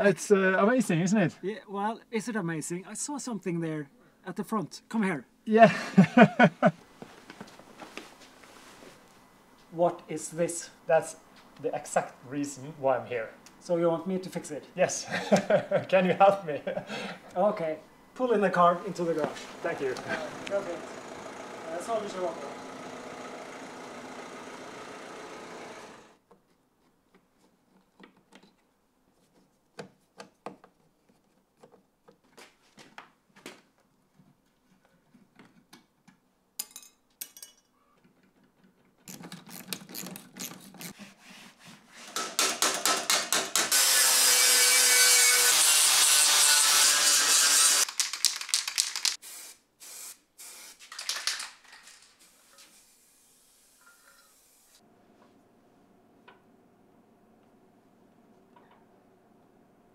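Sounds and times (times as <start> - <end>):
aerosol paint spraying: 48.9 - 51.0, 52.2 - 54.8.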